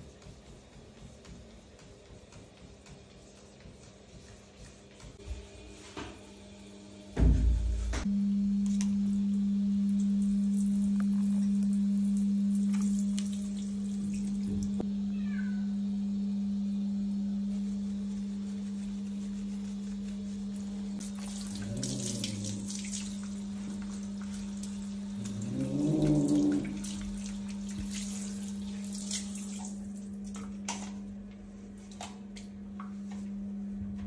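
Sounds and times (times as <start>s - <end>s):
steady low hum: 3.2s - 28.9s
wet fur squelching and dripping: 10.0s - 14.8s, 18.1s - 30.6s
short low moans: 21.6s - 22.7s, 25.2s - 26.9s.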